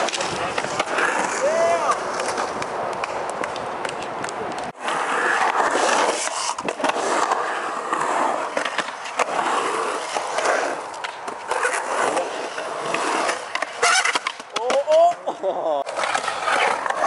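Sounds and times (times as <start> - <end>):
skateboard clacking on concrete: 0.0 - 7.2, 7.8 - 17.0
skateboard wheels rolling on concrete: 0.0 - 17.0.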